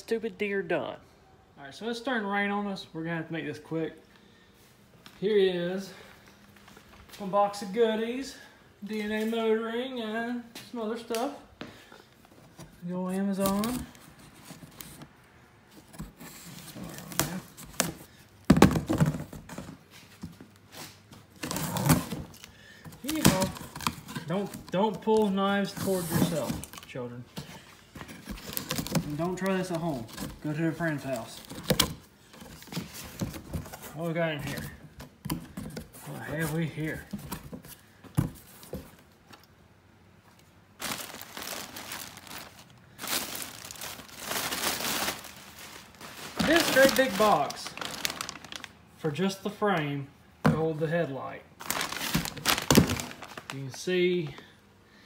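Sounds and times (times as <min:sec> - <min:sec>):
packing material rustling: 0:12.5 - 0:39.0, 0:40.4 - 0:48.8, 0:51.6 - 0:53.8.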